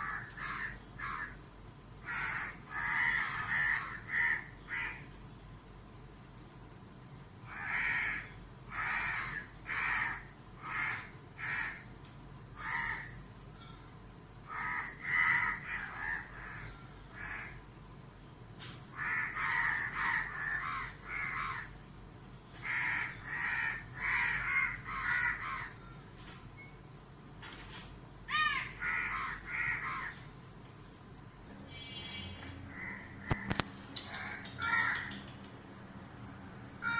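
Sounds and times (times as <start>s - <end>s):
crows cawing: 0.0s - 1.4s, 2.0s - 5.2s, 7.4s - 11.9s, 12.6s - 13.2s, 14.4s - 17.7s, 18.9s - 21.8s, 22.6s - 26.1s, 28.3s - 30.4s, 31.7s - 35.4s.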